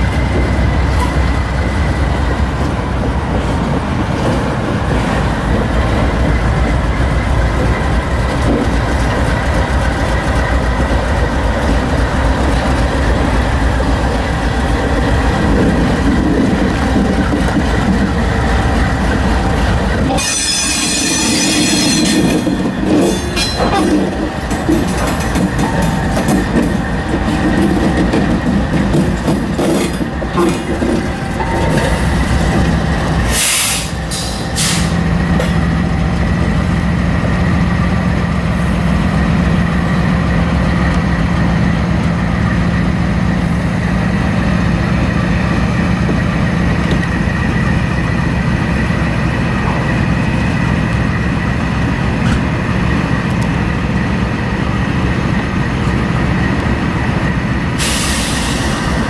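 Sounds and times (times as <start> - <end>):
locomotive engine low drone: 0.0 - 59.0
hiss bursts: 57.8 - 59.0.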